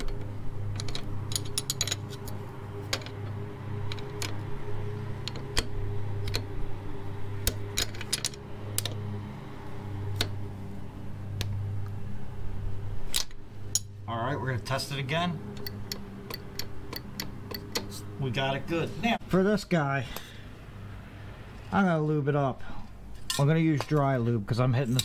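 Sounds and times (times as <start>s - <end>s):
wrenches clinking on metal: 0.0s - 4.4s, 7.4s - 9.0s, 24.8s - 25.0s
low hum: 0.0s - 19.5s.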